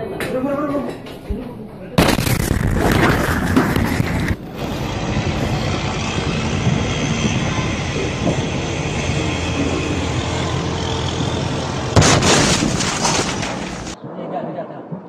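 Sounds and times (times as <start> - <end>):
explosion blast: 2.0 - 4.4, 11.9 - 14.0
distant fireball roar: 2.2 - 14.0.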